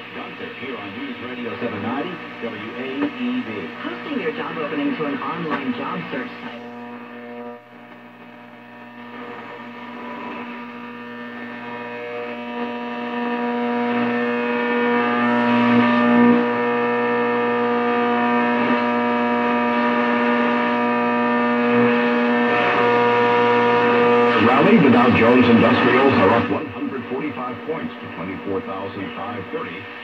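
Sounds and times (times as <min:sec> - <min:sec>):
faint radio static: 0:00.0 - 0:30.0
radio pitched buzz: 0:00.0 - 0:30.0.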